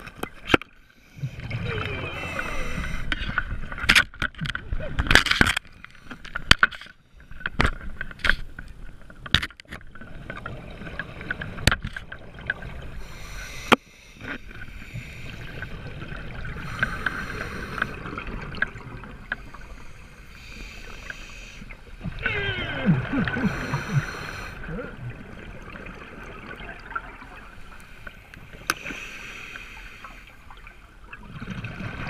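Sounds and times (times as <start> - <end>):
sharp underwater clicks and knocks: 0.0 - 0.8, 3.1 - 10.5, 11.2 - 12.6
regulator bubbles hissing and gurgling: 0.2 - 3.6, 10.0 - 32.0.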